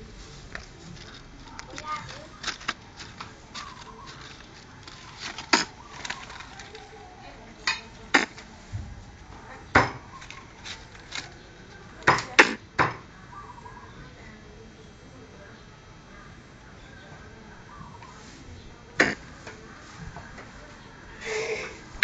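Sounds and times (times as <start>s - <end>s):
squirrel barking: 1.4s - 8.5s, 11.7s - 14.3s, 16.1s - 18.3s, 18.9s - 19.9s.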